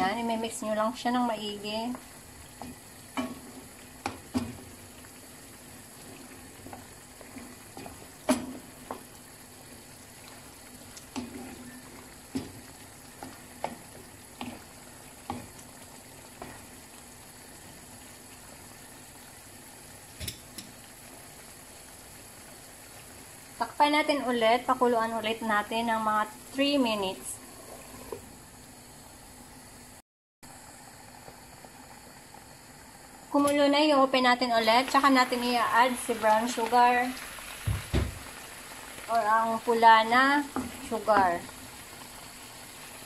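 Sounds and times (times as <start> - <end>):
braise simmering with bubbling hiss: 0.0 - 43.0.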